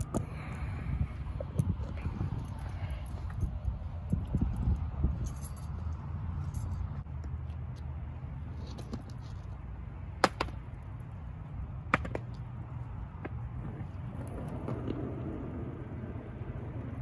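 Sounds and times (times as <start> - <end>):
skateboard wheels rolling on concrete: 5.8 - 17.0
skateboard clacking on concrete: 10.2 - 10.6, 11.9 - 12.5, 13.2 - 17.0.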